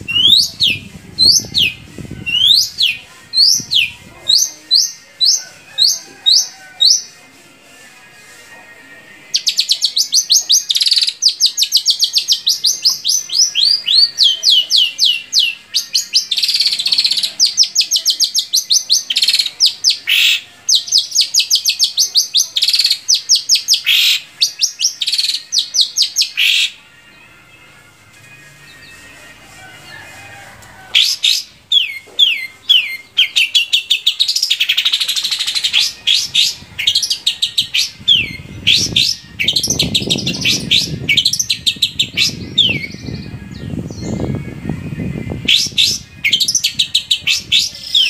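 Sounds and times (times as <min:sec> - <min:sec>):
bird whistling song: 0:00.0 - 0:07.1, 0:09.4 - 0:26.8, 0:30.9 - 0:44.4, 0:45.0 - 0:48.0
harsh bird calls: 0:00.0 - 0:07.1, 0:09.3 - 0:26.8, 0:30.9 - 0:44.3.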